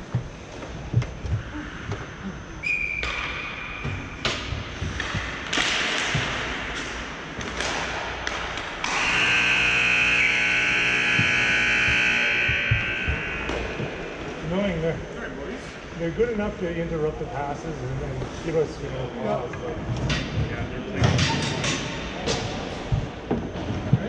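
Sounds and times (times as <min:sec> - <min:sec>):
ice rink buzzer blaring: 0:08.6 - 0:15.9.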